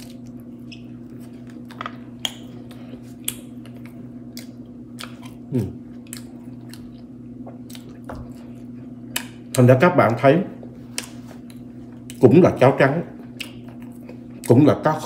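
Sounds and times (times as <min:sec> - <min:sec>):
person chewing crunchy food: 0:00.0 - 0:09.8, 0:13.1 - 0:14.6
steady low hum: 0:00.0 - 0:15.0.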